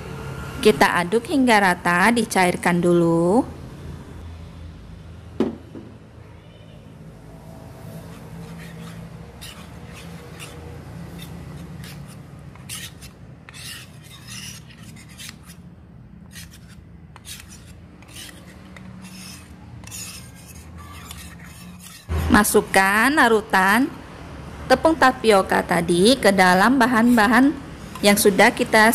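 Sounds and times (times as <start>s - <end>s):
metal spoon scraping in steel cup: 7.8s - 15.6s, 16.3s - 22.6s.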